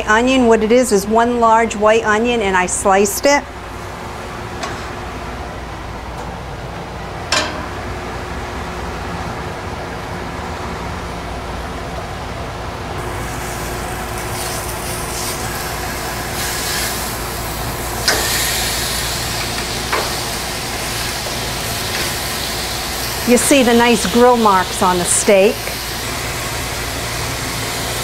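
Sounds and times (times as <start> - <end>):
vent hood fan drone: 0.0 - 28.0
steaks sizzling: 13.0 - 28.0.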